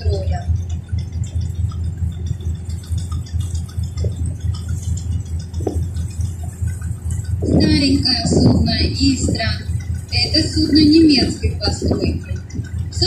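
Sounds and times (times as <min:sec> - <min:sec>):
boat engine droning: 0:00.0 - 0:13.0.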